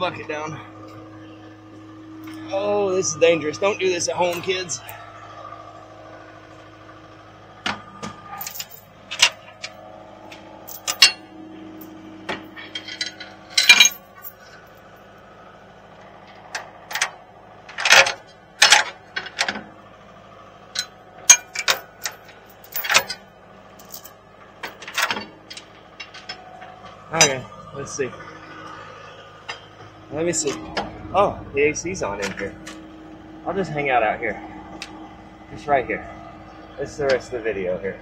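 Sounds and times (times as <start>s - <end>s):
skid steer idling: 0.0s - 38.0s
metal knocks and clanks: 10.7s - 11.2s.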